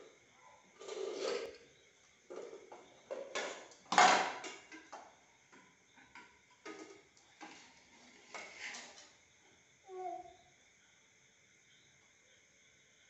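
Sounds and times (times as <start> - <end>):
steel plate clattering on tiles: 3.2 - 5.0.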